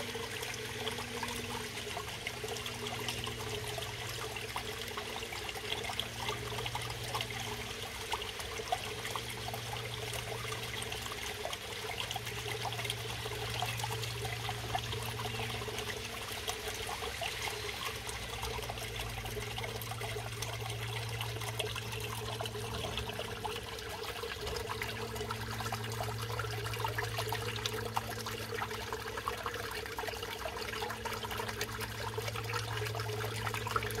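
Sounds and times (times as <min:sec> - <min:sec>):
water splashing into pond: 0:00.0 - 0:34.0
steady low hum: 0:11.9 - 0:34.0.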